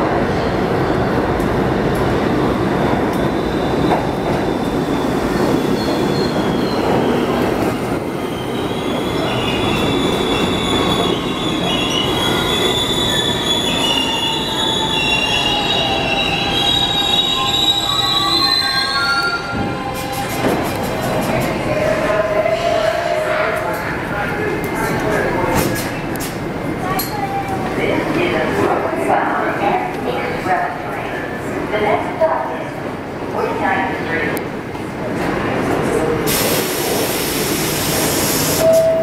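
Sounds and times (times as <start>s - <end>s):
subway train running: 0.0s - 39.0s
high brake squeal: 8.3s - 20.4s.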